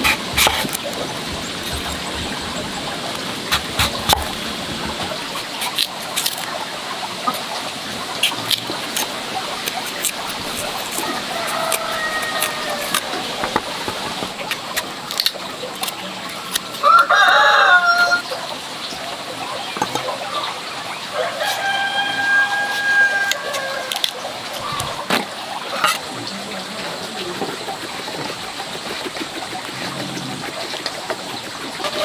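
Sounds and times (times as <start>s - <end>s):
rooster crowing: 11.0s - 13.2s, 16.8s - 18.3s, 21.1s - 24.0s.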